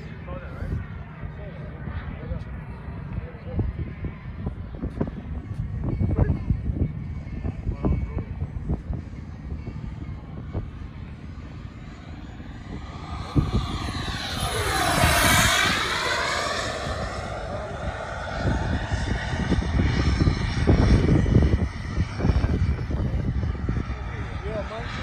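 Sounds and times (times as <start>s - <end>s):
model jet turbine passing: 7.9s - 25.0s.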